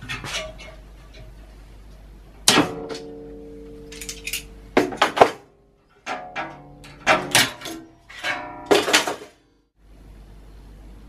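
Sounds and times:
metal clank ringing: 6.0s - 9.4s.

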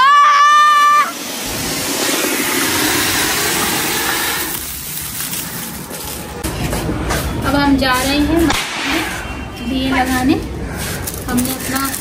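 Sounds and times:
firework fountain hissing: 0.0s - 6.8s.

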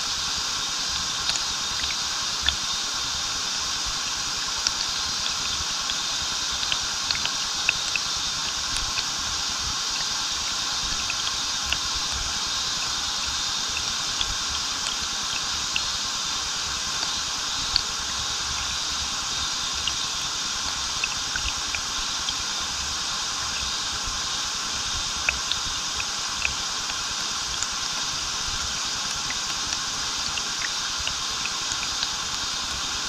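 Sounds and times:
water splashes and drips: 0.8s - 33.0s.

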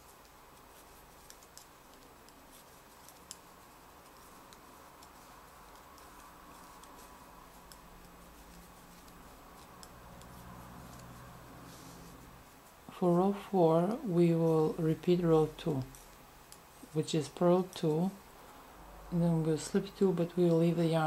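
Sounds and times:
knitting needles clicking: 0.0s - 12.2s, 14.7s - 18.1s.

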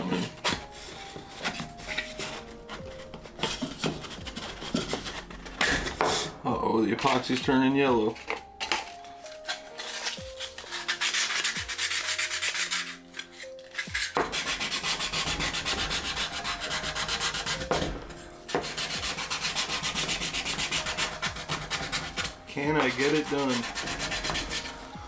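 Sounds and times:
sandpaper rubbing on wood: 9.4s - 24.8s.

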